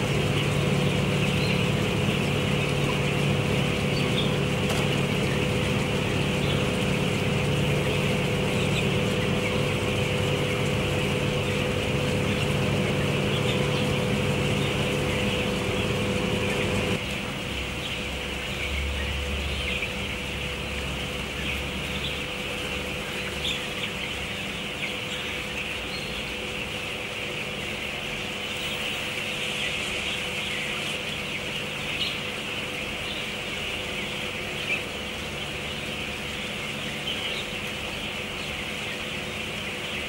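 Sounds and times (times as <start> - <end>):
chicks peeping: 0.0 - 40.0
ventilation fans humming: 0.0 - 40.0.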